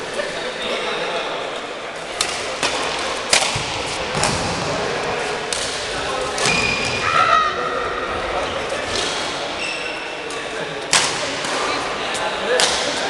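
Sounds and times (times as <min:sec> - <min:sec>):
rackets hitting shuttlecock: 0:02.2 - 0:04.6, 0:12.4 - 0:13.0
high squeak: 0:09.6 - 0:10.1.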